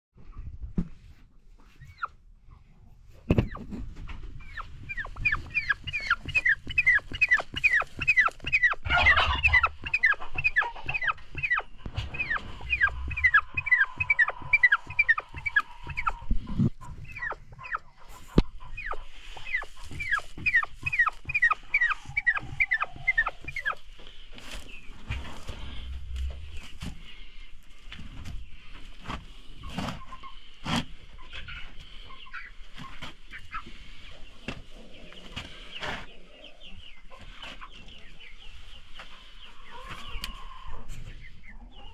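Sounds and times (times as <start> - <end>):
turkey hen calling: 4.4 - 27.3.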